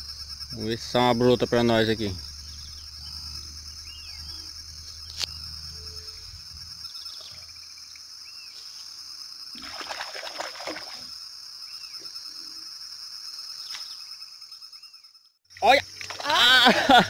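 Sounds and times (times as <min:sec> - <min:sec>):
bird chirps: 0:00.0 - 0:08.8, 0:11.6 - 0:16.0
high-pitched insect buzz: 0:00.0 - 0:16.9
splashing: 0:09.6 - 0:11.1, 0:15.9 - 0:17.0.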